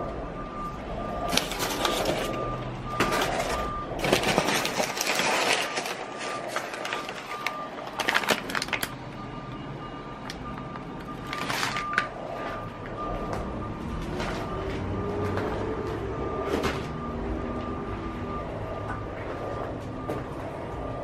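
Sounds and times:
electronic beeper beeping: 0.0s - 4.6s
rustling and clatter: 1.3s - 8.9s.

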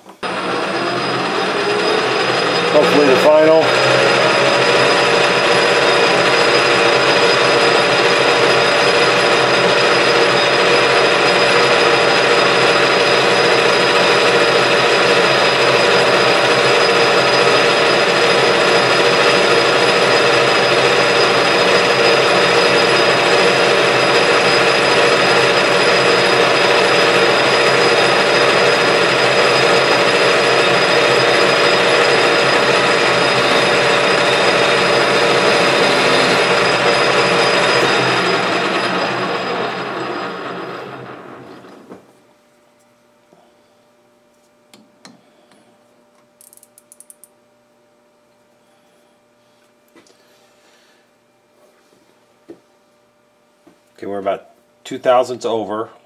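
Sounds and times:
metal lathe humming: 0.0s - 42.0s.

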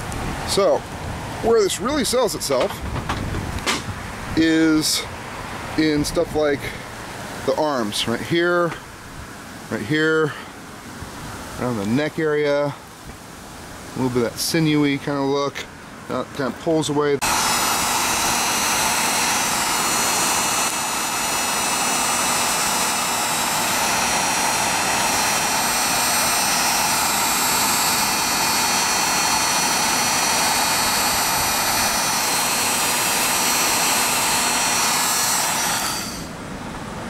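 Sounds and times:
heat gun blowing air: 17.2s - 36.4s.

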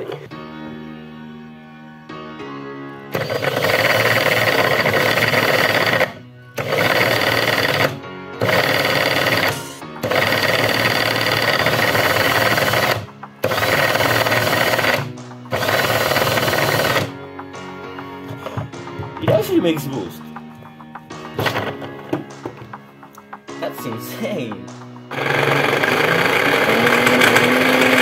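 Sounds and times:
power tool spinning supercharger: 3.1s - 17.2s, 25.1s - 28.0s.

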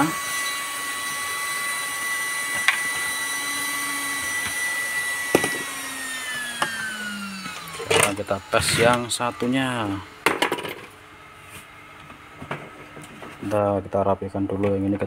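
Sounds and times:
high-pitched electronic whine: 0.0s - 10.9s.

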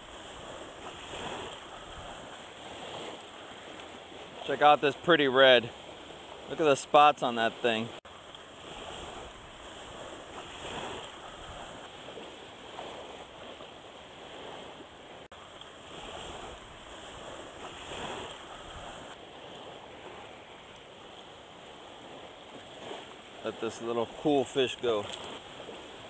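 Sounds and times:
wind on microphone: 0.0s - 4.2s, 8.5s - 14.8s, 15.9s - 23.2s
small waves lapping: 0.0s - 26.0s.

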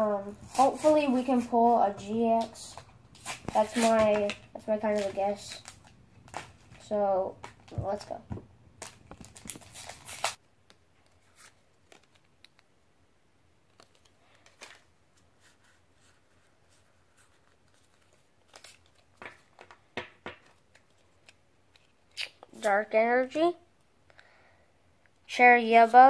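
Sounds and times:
trading cards clicking and rustling: 2.3s - 12.7s, 17.3s - 22.0s.

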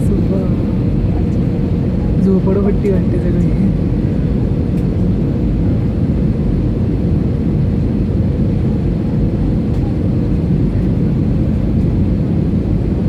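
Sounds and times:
airliner cabin engine roar: 0.0s - 13.0s.

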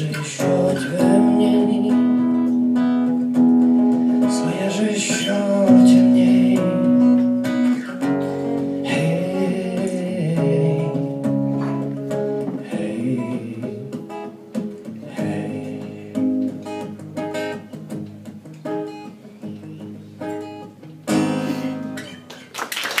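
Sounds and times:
acoustic guitar chords and plucking: 0.0s - 22.5s.

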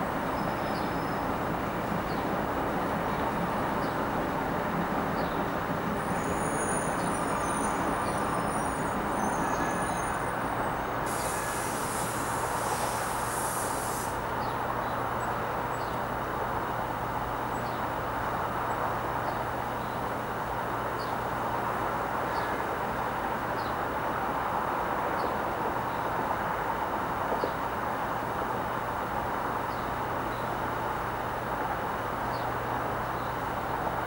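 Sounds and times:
distant city traffic roar: 0.0s - 34.0s
high hiss: 6.0s - 14.5s
thin high squeal: 6.1s - 14.2s.

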